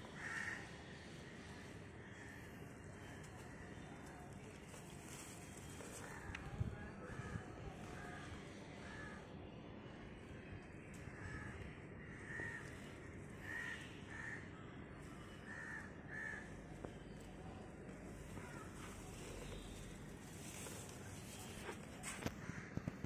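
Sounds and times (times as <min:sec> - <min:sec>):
distant crow cawing: 0:00.0 - 0:03.8, 0:11.1 - 0:17.0, 0:18.3 - 0:19.8, 0:20.5 - 0:23.0.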